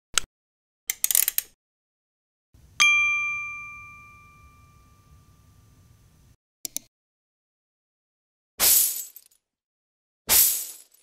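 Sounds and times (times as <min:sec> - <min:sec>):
bright metallic ding: 0:02.8 - 0:06.0.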